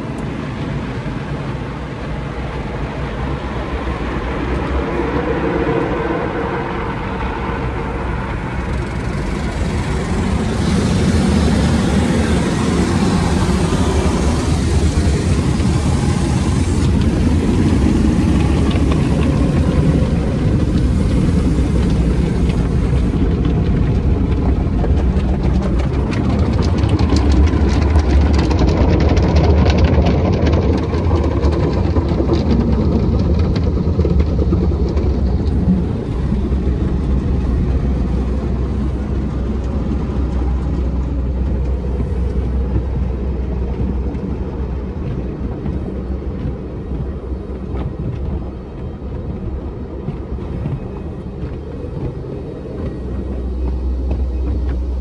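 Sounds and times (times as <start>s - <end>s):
deep steady rumble: 0.0s - 55.0s
spraying water: 6.6s - 25.0s
car wash brushes slapping: 8.4s - 36.5s.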